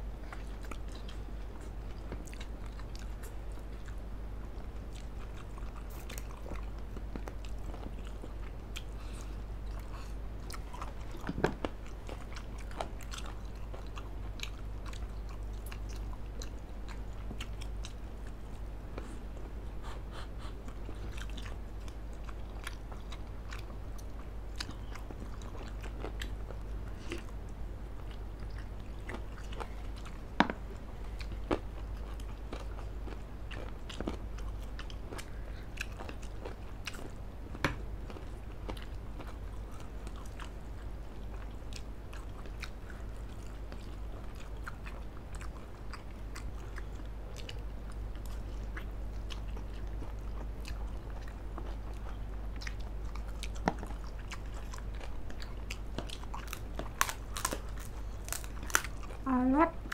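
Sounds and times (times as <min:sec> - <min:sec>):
low steady hum: 0:00.0 - 0:59.9
chewing noodles: 0:00.2 - 0:59.2
crunching cracker: 0:53.2 - 0:59.2.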